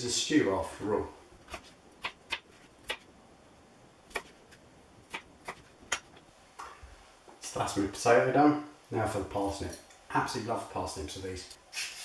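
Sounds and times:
knife chopping on plastic board: 5.1 - 6.1.

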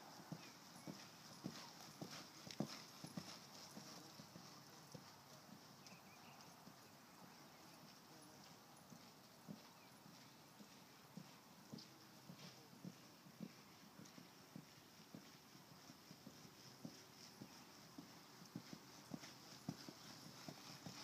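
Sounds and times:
horse hoofbeats: 0.0 - 21.0.

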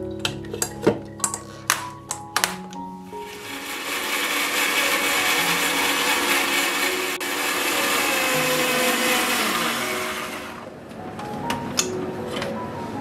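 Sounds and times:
mixer grinder motor running: 3.2 - 10.7.

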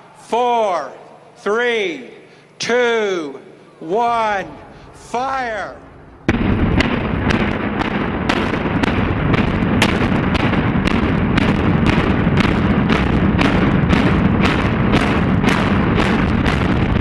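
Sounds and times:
continuous rumble: 4.4 - 17.0
demolition charges banging: 5.9 - 17.0.

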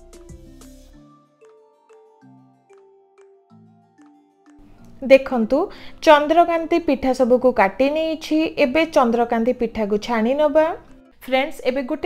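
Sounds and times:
instrumental beat with pitched notes: 0.0 - 4.6.

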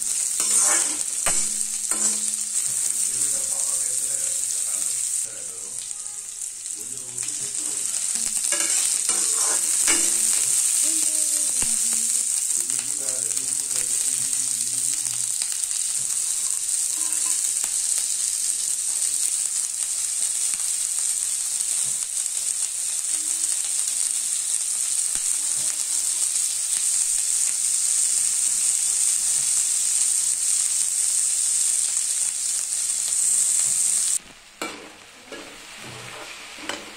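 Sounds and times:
spatula scraping vegetables: 0.0 - 5.2, 7.4 - 11.8, 34.9 - 36.9
vegetables sizzling in oil: 0.0 - 36.9.

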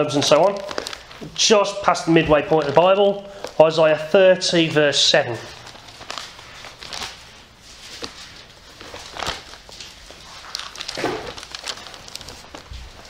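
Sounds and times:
book pages turning and rustling: 4.6 - 13.0.

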